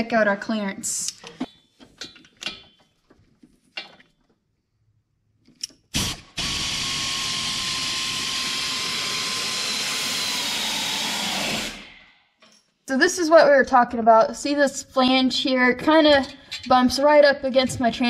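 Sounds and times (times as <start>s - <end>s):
air ratchet whirring: 6.0s - 12.0s.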